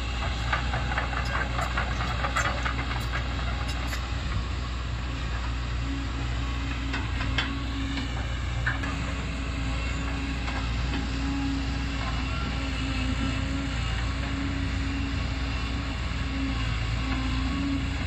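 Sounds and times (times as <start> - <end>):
excavator diesel engine running: 0.0 - 18.0
metal clanking and rattling: 0.4 - 4.1.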